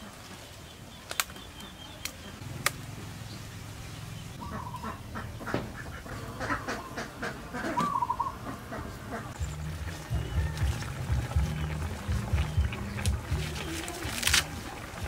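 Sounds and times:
poultry calling: 4.4 - 13.6
knife snapping through stalks: 14.0 - 14.5.

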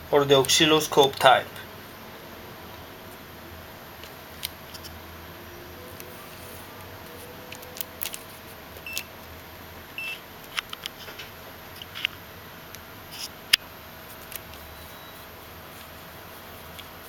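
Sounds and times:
short high key beeps: 14.7 - 15.2.

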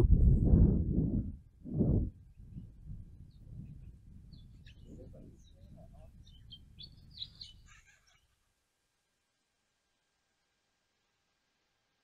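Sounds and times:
steady low rumble: 0.0 - 7.3
small birds chirping: 2.2 - 8.4.

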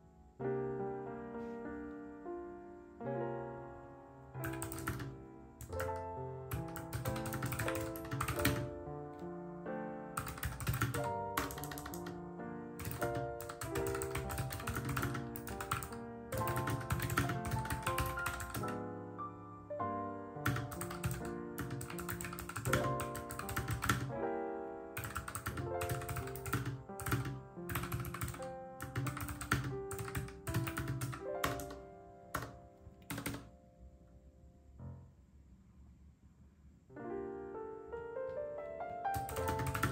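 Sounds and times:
background piano music: 0.0 - 39.9
keyboard typing clicks: 4.4 - 8.8, 10.2 - 12.2, 12.8 - 18.8, 20.4 - 24.1, 25.0 - 33.5, 39.1 - 39.9.

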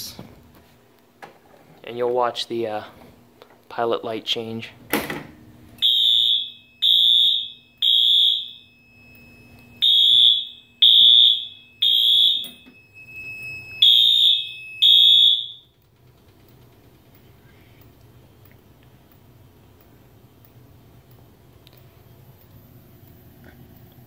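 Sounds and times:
fire alarm horn blasts: 5.8 - 15.8.

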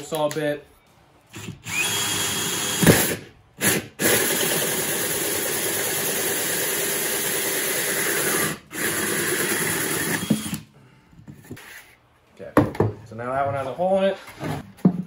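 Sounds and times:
drill with hole saw cutting: 1.3 - 10.7.

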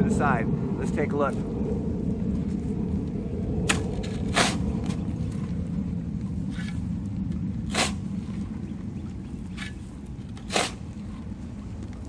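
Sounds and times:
low rumble: 0.0 - 12.0
shovel scraping into sandy soil: 3.7 - 5.0, 7.7 - 8.5, 9.5 - 11.1.

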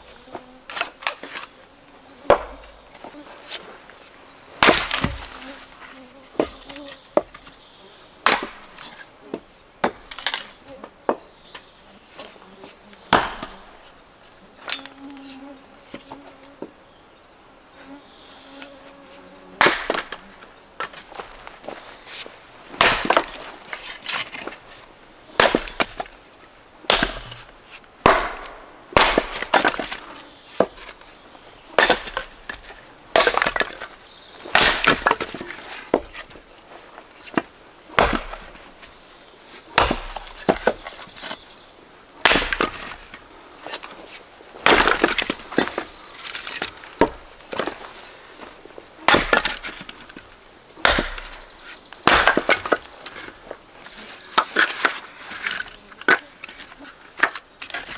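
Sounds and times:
axe chopping firewood: 2.3 - 2.8, 4.6 - 5.4, 6.4 - 7.5, 8.2 - 10.5, 13.1 - 13.8, 19.6 - 20.2, 22.1 - 24.6, 25.3 - 26.2, 26.8 - 31.0, 31.7 - 36.4, 37.2 - 38.8, 39.5 - 41.4, 42.2 - 47.9, 49.0 - 53.5
wood cracking apart: 4.6 - 5.7, 9.9 - 10.6, 19.6 - 21.6, 22.8 - 24.6, 26.9 - 31.1, 31.7 - 36.4, 37.2 - 38.9, 39.7 - 41.3, 42.2 - 57.9.

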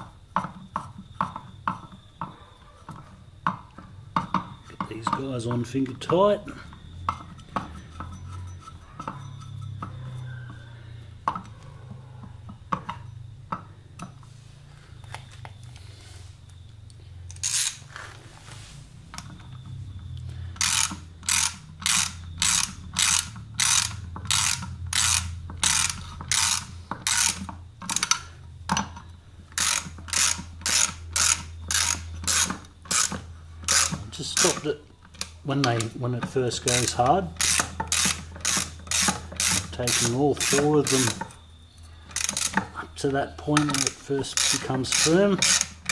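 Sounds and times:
socket ratchet clicking: 20.6 - 28.9, 29.5 - 41.4, 42.1 - 42.7, 43.5 - 45.9.

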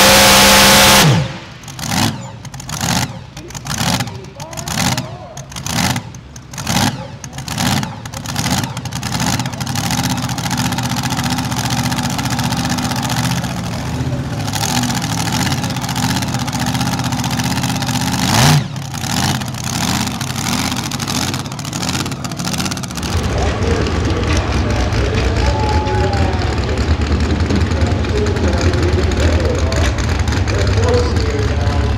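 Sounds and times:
supercharged truck engine revving: 0.0 - 31.9.

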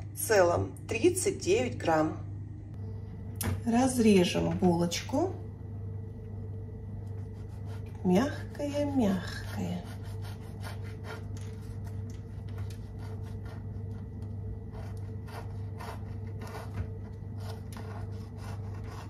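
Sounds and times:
steady low hum: 0.0 - 19.0
knife sawing through crusty bread: 7.2 - 8.0, 9.2 - 19.0.

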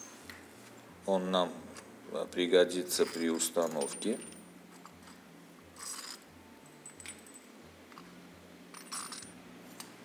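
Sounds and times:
steel parts clinking: 2.9 - 5.2, 5.8 - 8.1, 8.7 - 9.9.

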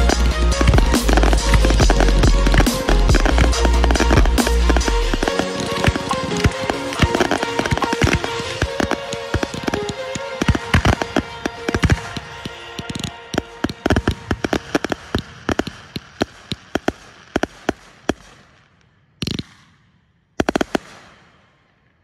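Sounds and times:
rumbling echo: 0.0 - 15.5
firework shells bursting: 0.0 - 18.6.

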